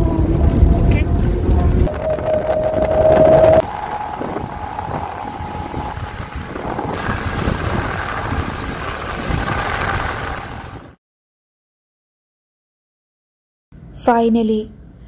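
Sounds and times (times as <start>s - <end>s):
wind buffeting through window: 0.0s - 11.0s
car body jolting over bumps: 6.3s - 10.9s.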